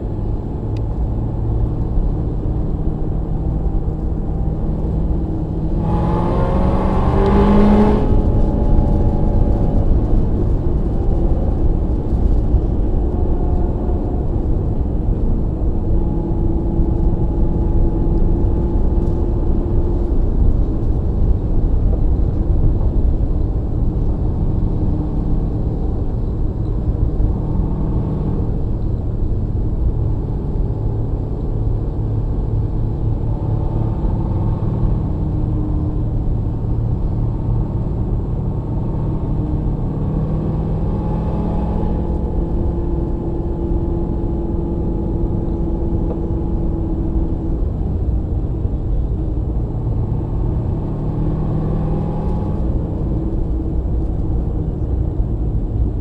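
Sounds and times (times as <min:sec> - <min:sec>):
car engine and road noise: 0:00.0 - 0:56.0
engine revving up: 0:05.7 - 0:09.9.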